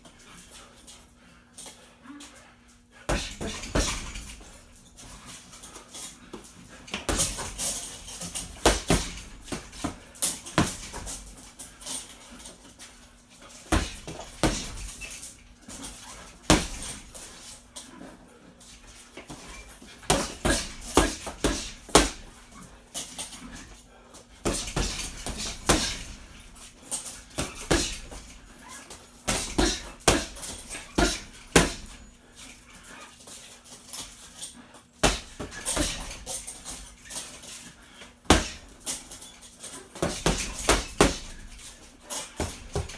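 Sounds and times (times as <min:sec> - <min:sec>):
boxing gloves punching heavy bag: 0:03.1 - 0:05.2, 0:06.3 - 0:12.0, 0:13.6 - 0:17.5, 0:19.2 - 0:23.7, 0:24.4 - 0:32.1, 0:35.0 - 0:37.5, 0:38.2 - 0:39.3, 0:39.9 - 0:42.9.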